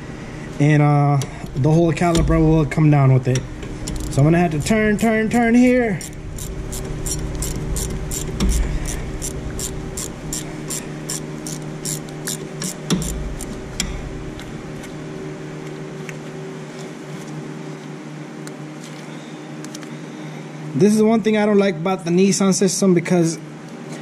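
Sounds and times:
steady low hum: 0.0s - 24.0s
ratchet wrench clicking: 6.0s - 13.5s.

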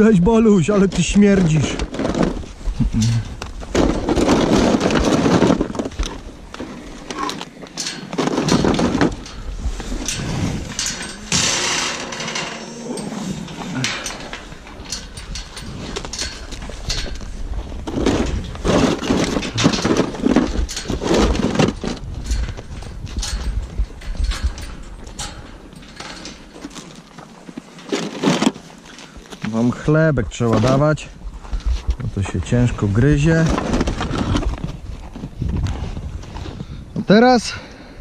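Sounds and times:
rustling: 0.6s - 36.7s
cattle crunching bread: 1.8s - 29.5s
wind on microphone: 8.5s - 12.1s, 12.7s - 26.4s, 33.6s - 37.1s
knocks on metal gate: 10.8s - 13.0s.

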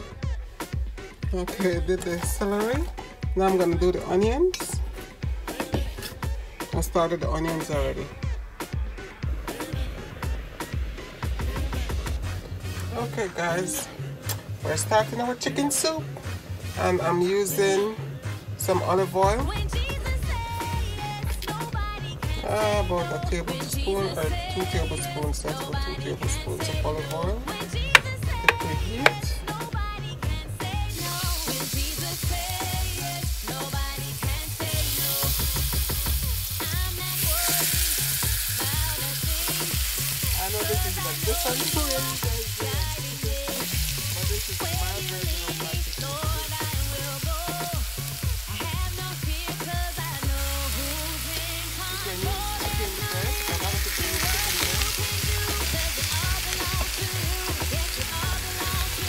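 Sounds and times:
music with bass beat and melody: 0.0s - 59.0s
chicken sizzling in oil: 27.0s - 59.0s.

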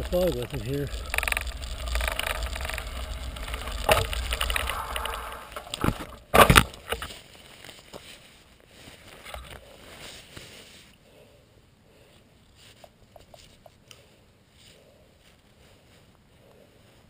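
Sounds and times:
wind rumbling on microphone: 0.0s - 6.4s
faint clicks: 0.0s - 7.1s
bike rolling on gravel: 0.0s - 7.9s.

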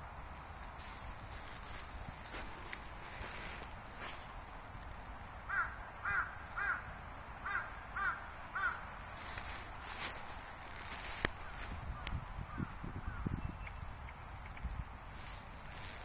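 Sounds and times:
crow cawing: 5.5s - 8.9s, 12.5s - 13.3s.

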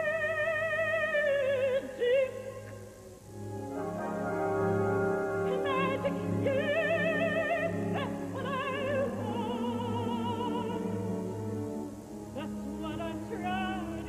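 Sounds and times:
operatic soprano singing: 0.0s - 3.0s, 3.8s - 14.0s
orchestra sustained chords: 3.2s - 14.0s.

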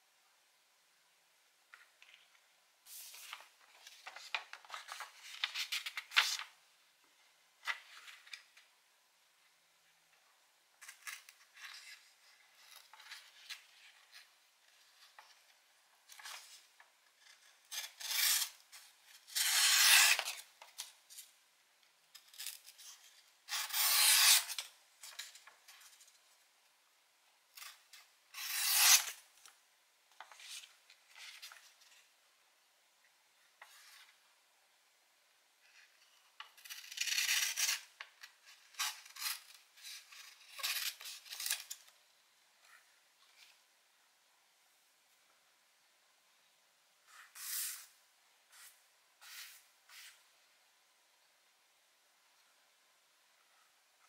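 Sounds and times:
paper rustling: 1.8s - 6.5s
knife slicing paper: 17.7s - 18.6s, 19.3s - 20.4s, 23.5s - 24.6s, 27.6s - 29.2s, 48.5s - 50.2s.

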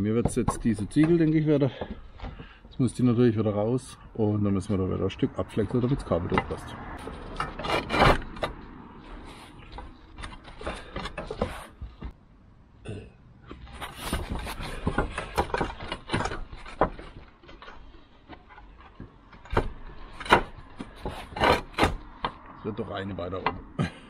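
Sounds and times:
roof tiles knocking and scraping: 0.0s - 3.1s, 5.8s - 12.2s, 13.4s - 22.5s.

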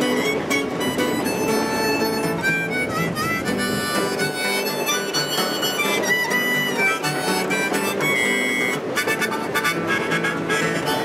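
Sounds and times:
harmonica: 0.0s - 11.0s
strummed acoustic guitar: 0.0s - 11.0s.

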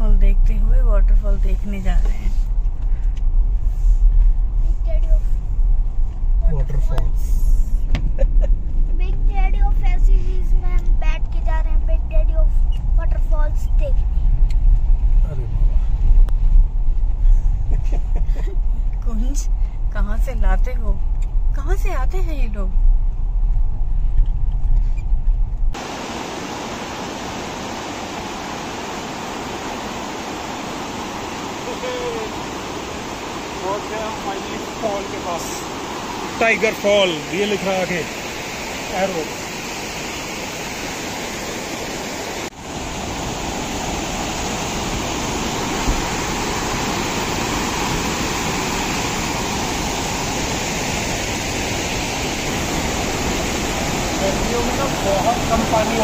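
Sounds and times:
car engine and road rumble: 0.0s - 56.0s
waterfall rushing: 25.8s - 56.0s.

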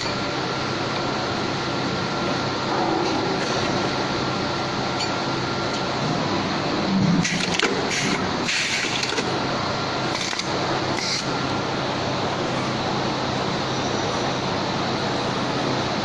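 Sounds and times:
factory machinery humming: 0.0s - 16.0s
riveting machine hiss and clatter: 5.7s - 13.6s.

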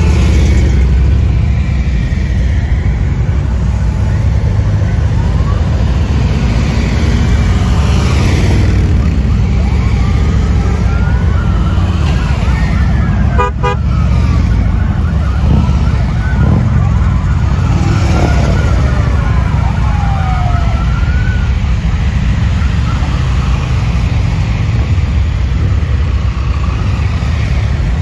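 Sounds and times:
motorcycle engines droning: 0.0s - 28.0s
short horn beep: 13.4s - 13.8s.

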